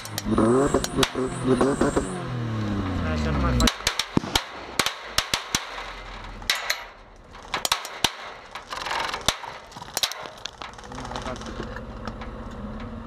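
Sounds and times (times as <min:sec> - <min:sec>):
airsoft gunshots snapping: 0:03.6 - 0:05.9, 0:07.7 - 0:08.4.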